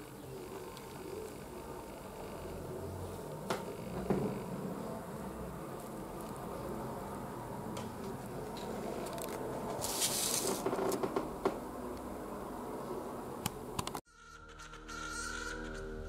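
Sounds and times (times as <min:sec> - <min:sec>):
paper rustling: 0:08.6 - 0:10.8
quiet music: 0:14.1 - 0:16.0.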